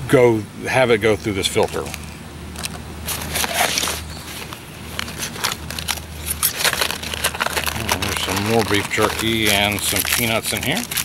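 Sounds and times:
fabric bag rustling: 0:03.0 - 0:11.0.

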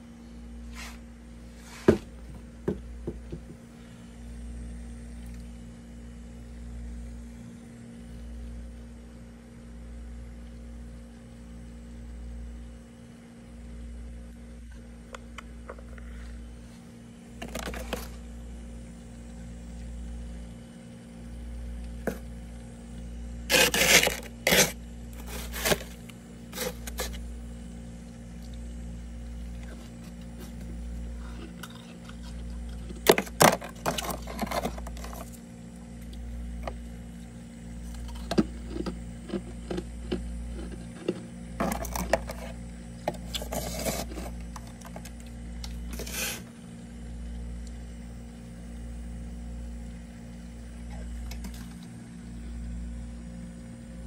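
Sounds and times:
steady low hum: 0:00.0 - 0:54.0
frost being scraped: 0:00.7 - 0:01.9, 0:23.5 - 0:27.2, 0:43.3 - 0:44.7, 0:45.9 - 0:46.5.

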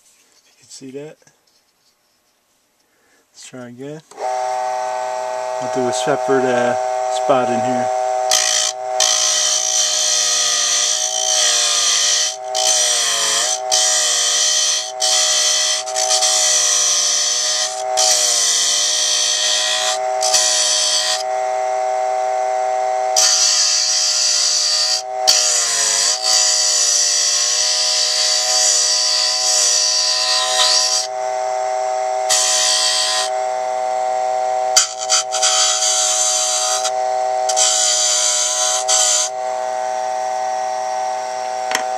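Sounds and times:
tool scraping spinning wood: 0:04.1 - 0:21.5, 0:22.8 - 0:34.0, 0:34.6 - 0:39.5
electric motor whining: 0:04.1 - 0:41.9.

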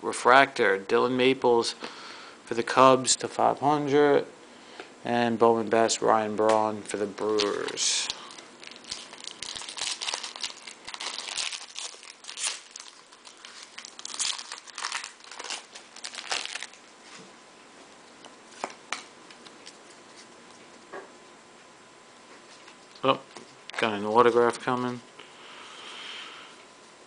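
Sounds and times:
foil wrapper tearing and crinkling: 0:07.2 - 0:16.8.

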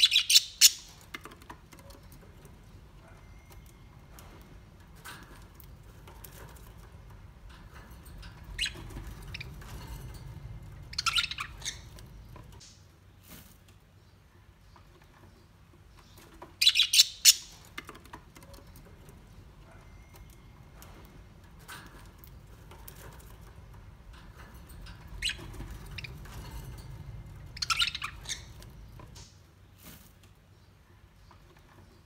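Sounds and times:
bird chirps and squawks: 0:00.0 - 0:01.0, 0:10.9 - 0:12.0, 0:16.6 - 0:17.6, 0:27.6 - 0:28.8
low steady rumble: 0:02.4 - 0:12.7, 0:18.9 - 0:29.6.

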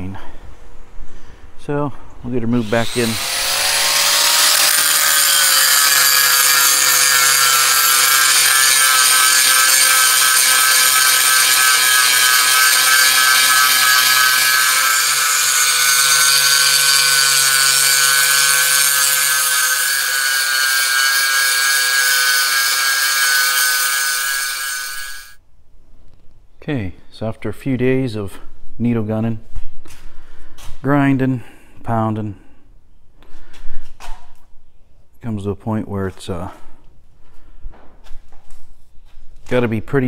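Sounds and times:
angle grinder grinding metal: 0:02.5 - 0:25.4.

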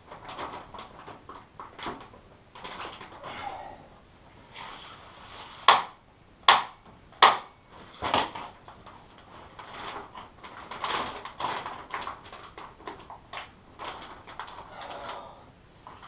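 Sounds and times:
plastic sheet crackling: 0:00.0 - 0:03.3, 0:06.6 - 0:16.0.

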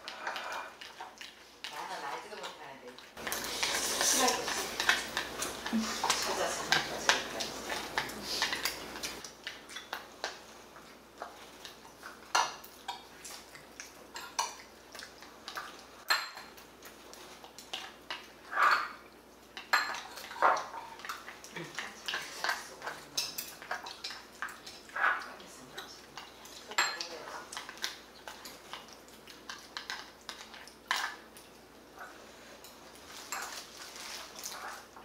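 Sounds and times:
metal spoon clinking on ceramic bowl: 0:26.7 - 0:27.1.

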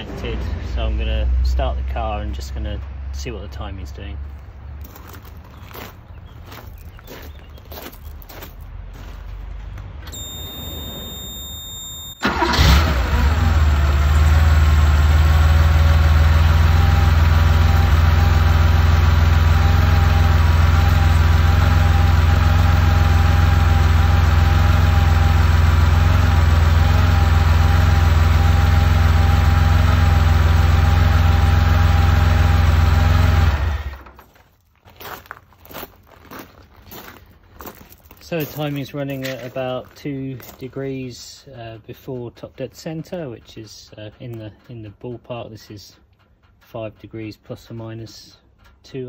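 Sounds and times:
car engine starting and idling: 0:09.6 - 0:34.2.

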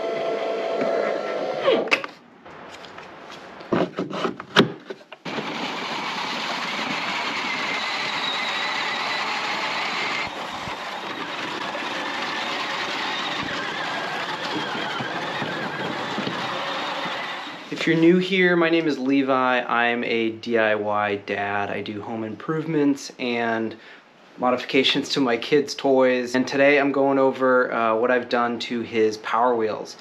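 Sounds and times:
electric toy motors whining: 0:00.0 - 0:01.9, 0:05.2 - 0:17.7.

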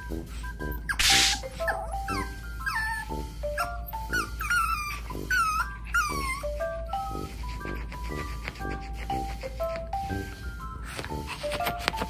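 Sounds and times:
background music with steady beat: 0:00.0 - 0:12.0
puppy whimpering: 0:00.7 - 0:10.0.

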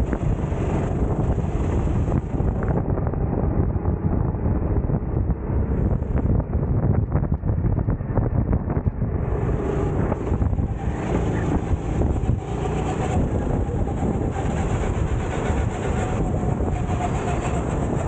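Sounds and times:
kart engine running: 0:00.0 - 0:05.0, 0:09.1 - 0:18.0
wind buffeting microphone: 0:00.0 - 0:18.0.

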